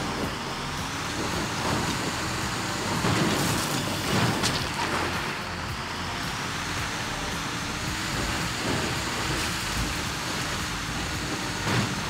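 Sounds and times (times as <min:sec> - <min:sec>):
low engine hum: 0:00.0 - 0:12.0
rush of wheels on dirt: 0:00.0 - 0:12.0.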